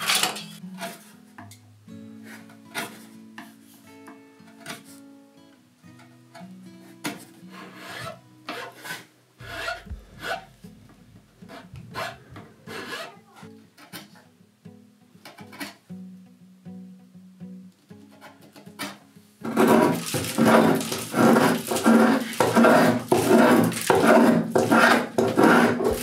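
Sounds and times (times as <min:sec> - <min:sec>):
soft plucked guitar music: 0:00.0 - 0:20.0
chisel paring and filing wood: 0:02.2 - 0:03.0, 0:07.0 - 0:10.5, 0:11.4 - 0:13.2, 0:18.1 - 0:26.0
hand tool scraping wood: 0:02.2 - 0:03.5, 0:06.8 - 0:10.8, 0:11.4 - 0:13.2, 0:18.1 - 0:26.0.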